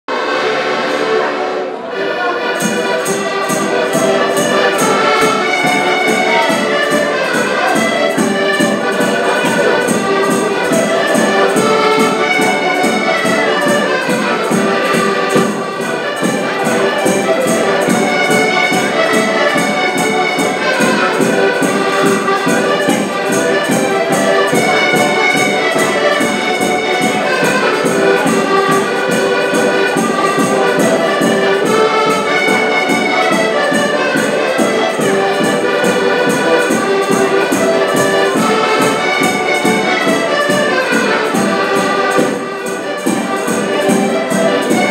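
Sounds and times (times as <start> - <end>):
accordions playing folk music: 0.0 - 44.9.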